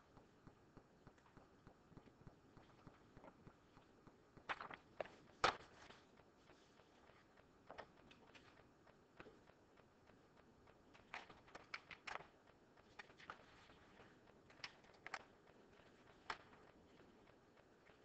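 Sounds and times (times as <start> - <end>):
paper sheets rustling: 4.5 - 6.1.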